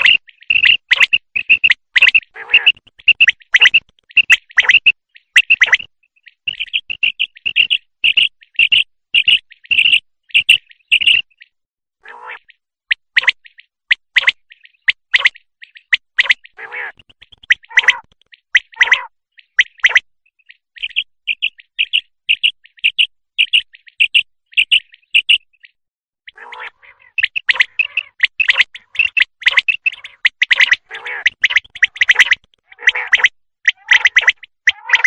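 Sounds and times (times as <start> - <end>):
quail calling: 0.0 - 11.2, 12.0 - 12.6, 14.2 - 19.9, 26.3 - 35.0.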